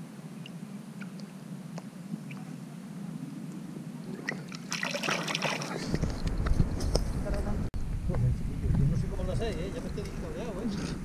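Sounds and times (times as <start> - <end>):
water dripping and lapping: 4.0 - 5.9
fish splashing in water: 4.2 - 5.8.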